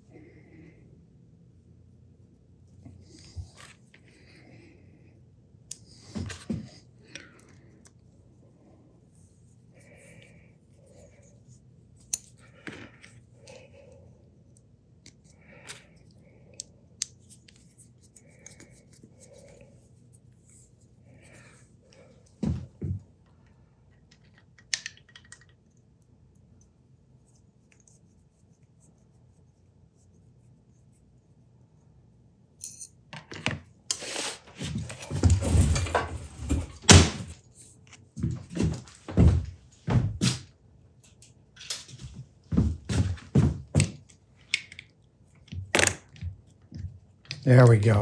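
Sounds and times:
steel parts clinking: 32.6s - 32.9s.

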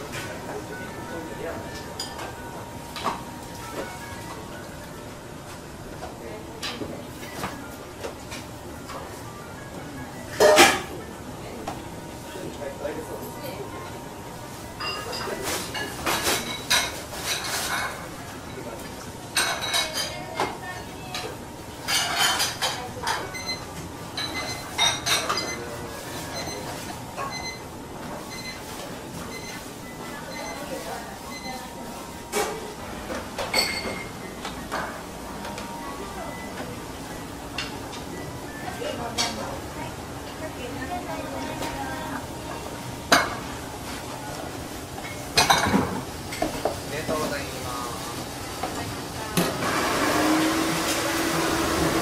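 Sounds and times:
steady kitchen hum: 0.0s - 52.0s
metal pots and dishes clattering: 10.3s - 11.0s, 33.4s - 35.0s, 45.1s - 46.6s.

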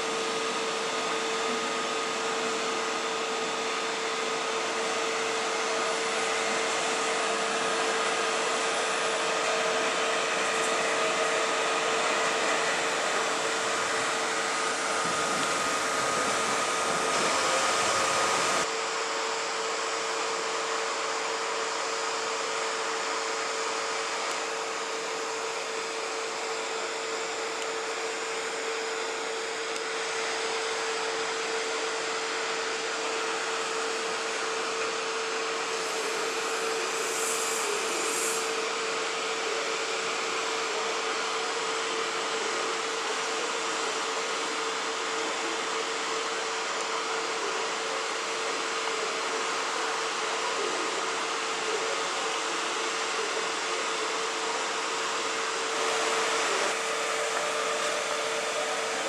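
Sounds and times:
constant hum: 0.0s - 18.7s
trains rushing noise: 3.9s - 18.7s, 35.6s - 38.7s.

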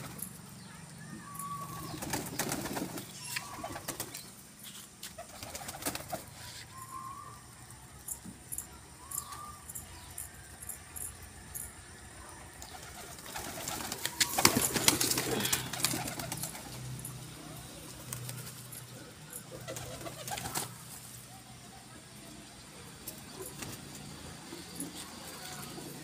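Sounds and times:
pigeons shuffling and rustling: 1.2s - 11.1s, 12.5s - 21.4s
pigeons cooing: 12.7s - 16.9s, 18.8s - 20.7s.

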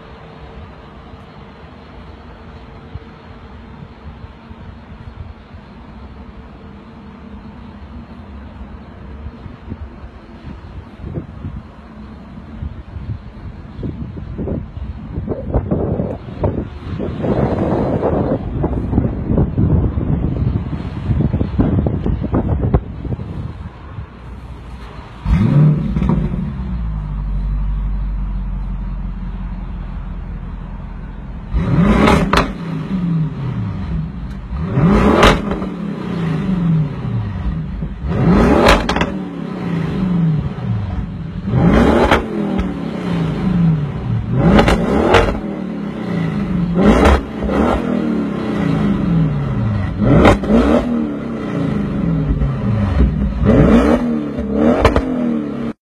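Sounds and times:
car engine idling: 0.0s - 53.7s
car engine revving: 24.7s - 28.2s, 31.4s - 55.8s.

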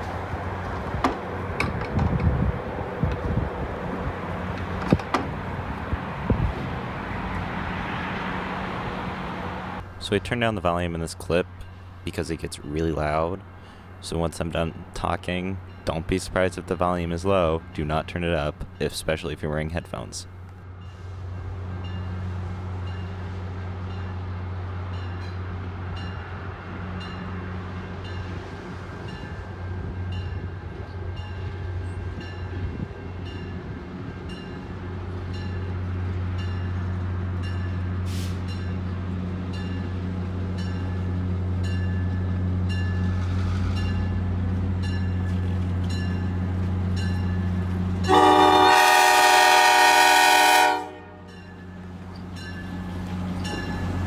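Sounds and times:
diesel locomotive engine humming: 0.0s - 54.0s
loud locomotive horn blast: 48.0s - 51.4s.

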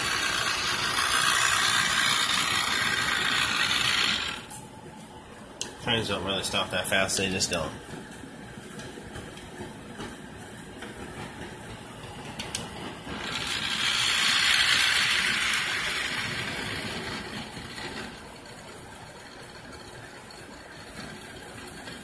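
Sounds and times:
model train whirring and rattling: 0.0s - 4.9s, 5.6s - 22.0s.

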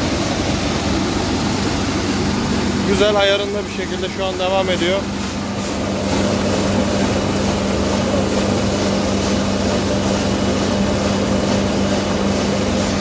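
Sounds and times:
winnowing machine droning: 0.0s - 13.0s.

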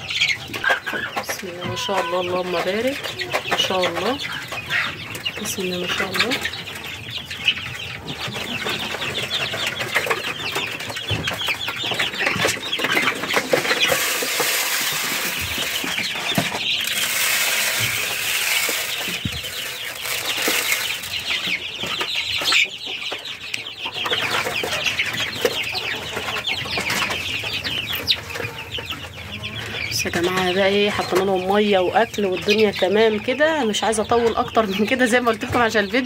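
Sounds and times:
chicks and ducklings peeping: 0.0s - 36.0s
rustling: 8.3s - 22.6s.

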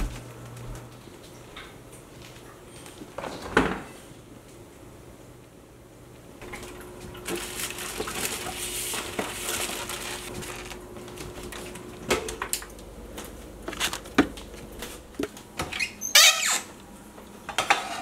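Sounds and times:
plastic bags crinkling: 7.1s - 11.8s.

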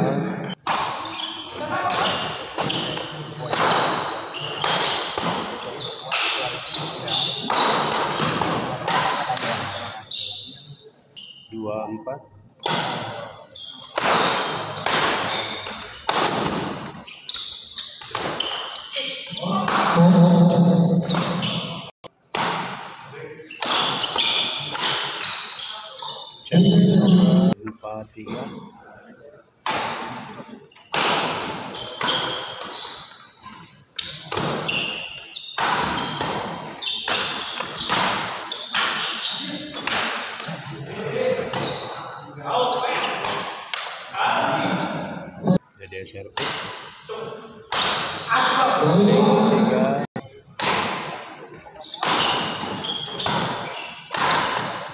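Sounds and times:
players' voices: 0.0s - 10.9s, 18.7s - 21.9s, 23.0s - 30.8s, 38.8s - 54.7s
sneakers squeaking on wooden floor: 0.4s - 11.6s, 13.4s - 21.9s, 23.4s - 27.6s, 31.6s - 40.6s, 41.4s - 43.4s, 51.5s - 54.9s
rackets hitting shuttlecock: 1.9s - 9.8s, 13.9s - 18.7s, 23.6s - 25.6s, 35.5s - 40.7s, 47.7s - 48.3s, 50.6s - 54.9s
racket hitting shuttlecock: 13.9s - 16.8s, 22.3s - 23.0s, 23.6s - 25.4s, 35.6s - 39.2s, 47.7s - 48.2s, 51.9s - 54.9s.

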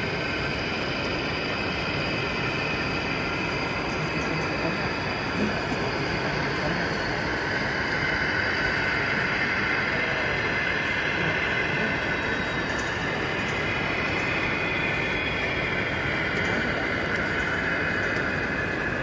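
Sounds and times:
model train rolling: 0.0s - 19.0s.

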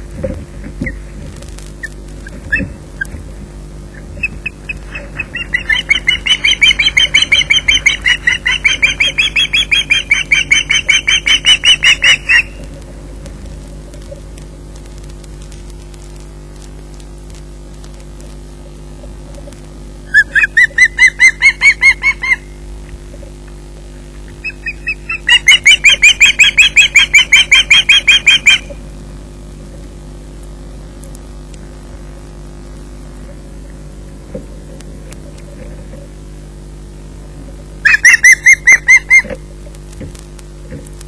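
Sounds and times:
low electrical hum: 0.0s - 41.0s
osprey whistled chirps: 4.2s - 12.6s, 24.4s - 28.7s, 37.9s - 39.3s.

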